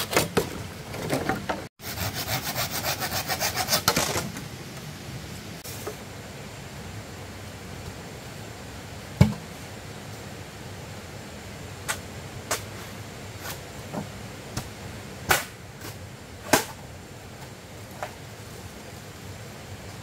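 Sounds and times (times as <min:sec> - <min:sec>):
steady background hiss: 0:00.0 - 0:20.0
machete chopping bamboo: 0:15.3 - 0:15.6, 0:16.5 - 0:16.8.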